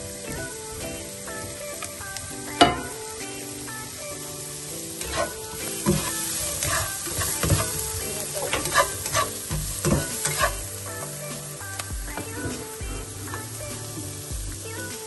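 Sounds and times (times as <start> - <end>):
onions sizzling in frying pan: 0.0 - 15.0
spatula scraping pan: 5.0 - 10.6.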